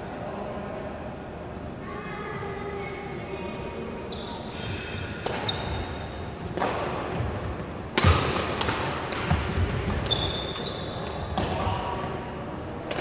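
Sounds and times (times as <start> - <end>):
shoe squeak on wooden floor: 4.1 - 6.1, 9.3 - 11.3
rackets striking shuttlecock: 7.9 - 10.7.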